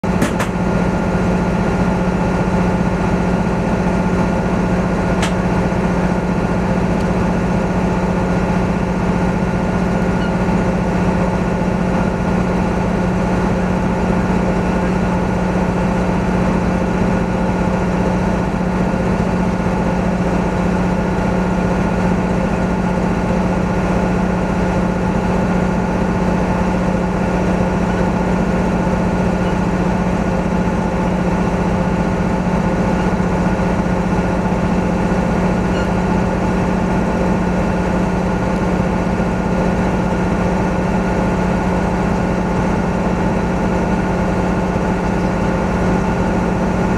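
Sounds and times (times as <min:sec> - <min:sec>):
engine idling: 0:00.0 - 0:46.9
click: 0:05.2 - 0:05.4.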